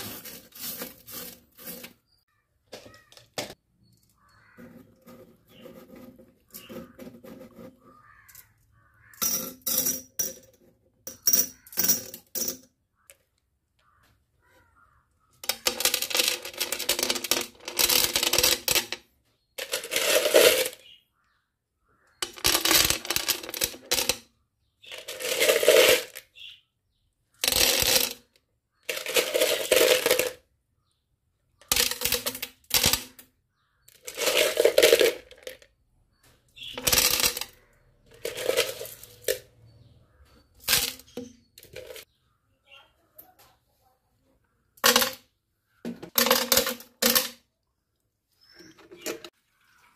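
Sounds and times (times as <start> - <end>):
glass pebbles clattering into fish tank: 15.4 - 18.9, 19.6 - 21.0, 22.2 - 24.3, 24.9 - 26.3, 28.9 - 30.4, 31.6 - 33.2, 33.9 - 35.7, 36.6 - 39.7, 40.5 - 42.1, 46.1 - 47.5.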